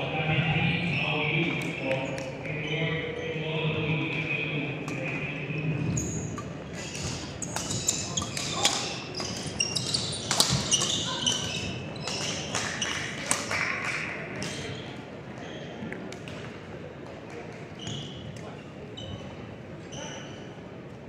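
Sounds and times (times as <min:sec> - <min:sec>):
voices: 0:00.0 - 0:14.7
sneakers squeaking on floor: 0:05.8 - 0:13.2, 0:14.4 - 0:16.4, 0:17.7 - 0:20.6.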